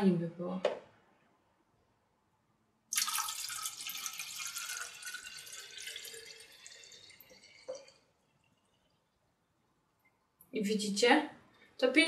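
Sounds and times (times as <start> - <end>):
liquid pouring into a saucer: 2.9 - 9.0.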